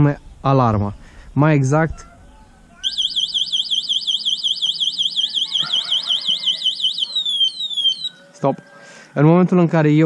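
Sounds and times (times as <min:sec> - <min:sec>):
alarm falling whoops: 0:02.8 - 0:08.2
electronic alarm warble: 0:02.8 - 0:08.4.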